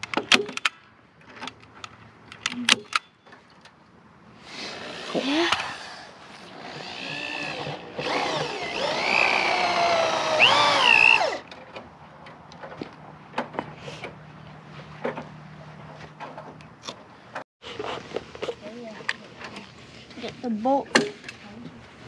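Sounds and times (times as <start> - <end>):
power drill running: 5.8 - 11.4.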